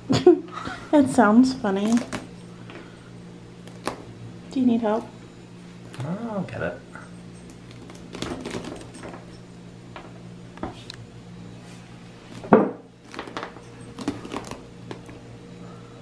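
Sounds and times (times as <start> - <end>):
fruit knocking on wooden table: 12.5 - 12.8.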